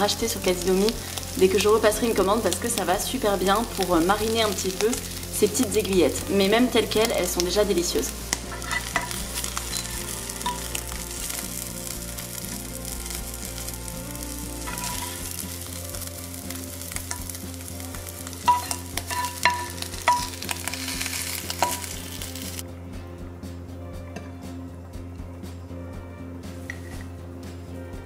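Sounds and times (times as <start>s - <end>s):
food sizzling in a frying pan: 0.0s - 22.6s
spatula scraping and tapping pan: 8.3s - 11.4s, 14.6s - 15.4s, 18.4s - 22.0s.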